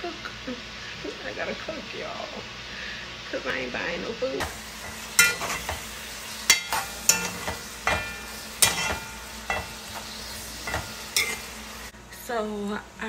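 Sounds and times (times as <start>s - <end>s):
vegetables sizzling in oil: 0.0s - 13.0s
metal spoon knocking on pot: 6.5s - 9.7s.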